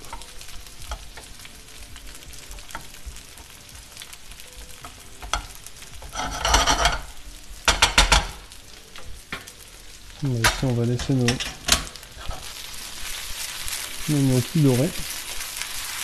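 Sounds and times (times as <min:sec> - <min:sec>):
onions and bacon sizzling in pan: 0:00.0 - 0:16.0
wooden spatula scraping pan: 0:06.0 - 0:07.2.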